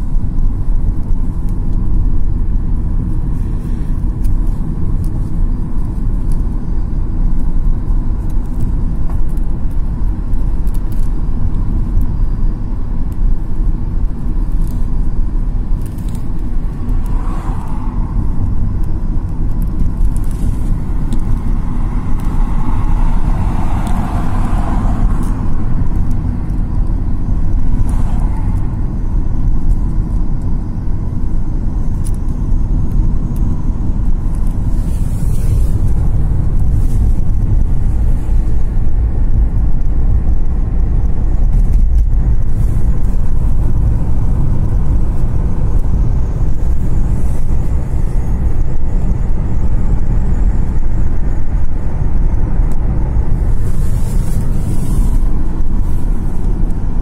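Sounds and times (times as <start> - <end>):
car road and engine rumble: 0.0 - 57.0
hiss: 53.5 - 56.3.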